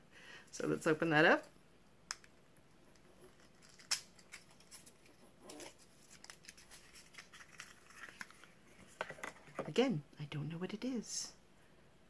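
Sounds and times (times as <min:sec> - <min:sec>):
cardboard rustling: 0:03.4 - 0:09.6.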